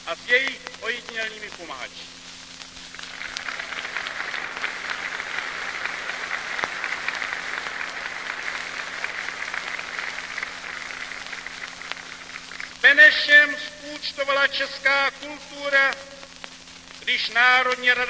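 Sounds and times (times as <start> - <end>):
crowd applauding: 2.8 - 12.8.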